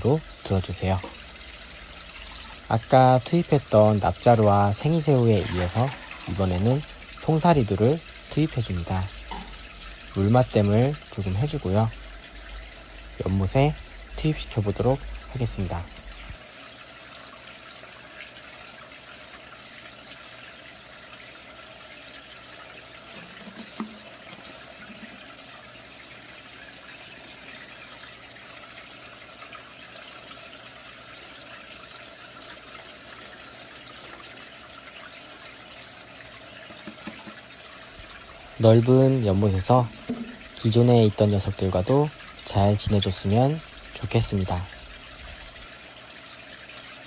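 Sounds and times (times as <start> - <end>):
water trickling into pond: 0.0 - 47.0
faint knock: 39.9 - 40.5.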